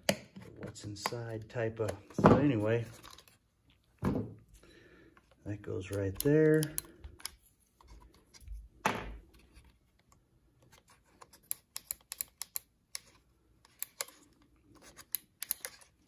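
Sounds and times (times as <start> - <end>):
plastic housing clicking: 5.9 - 7.4, 11.2 - 14.2, 14.9 - 15.9.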